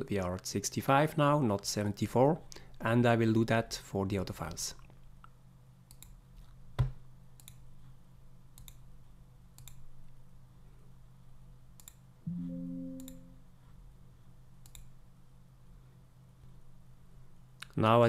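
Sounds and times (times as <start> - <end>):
faint steady hum: 0.0 - 18.0
computer mouse clicks: 5.9 - 6.6, 7.4 - 7.7, 8.6 - 8.9, 9.6 - 9.9, 11.8 - 12.0, 14.6 - 14.9
computer alert chime: 12.3 - 13.4.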